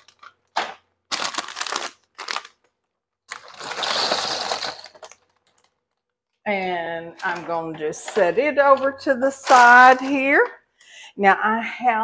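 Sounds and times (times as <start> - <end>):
crisp snacks rattling into paper sack: 0.0 - 2.7, 3.3 - 5.8
plastic bag crackling: 0.0 - 6.4.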